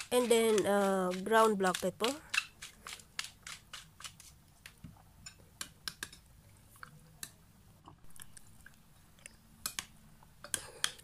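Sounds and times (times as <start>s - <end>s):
metal spoon stirring in glass bowl: 0.0s - 4.2s.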